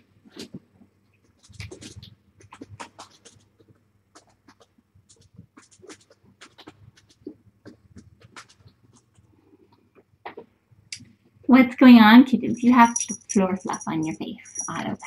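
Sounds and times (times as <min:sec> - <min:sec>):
kittens clicking and scuffling: 0:00.2 - 0:11.1.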